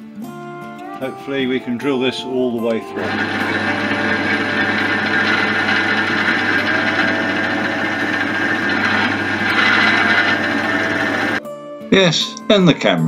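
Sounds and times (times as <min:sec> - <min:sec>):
pillar drill cutting metal: 0:03.0 - 0:11.4.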